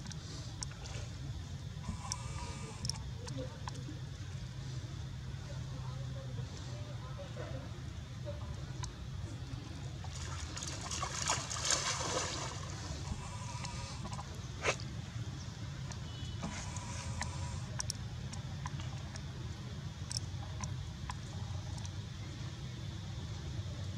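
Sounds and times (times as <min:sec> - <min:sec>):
pool water splashing and dripping: 0:09.8 - 0:13.2.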